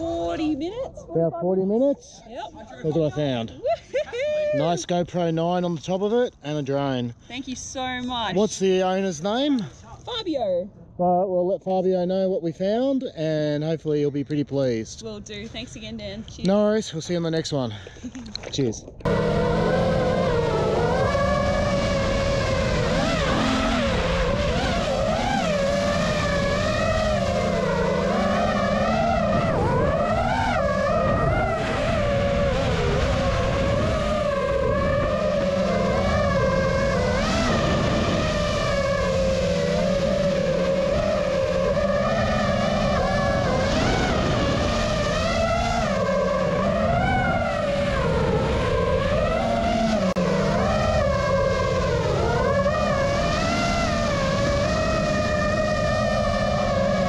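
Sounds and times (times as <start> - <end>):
drone motors whining: 18.9 - 57.0.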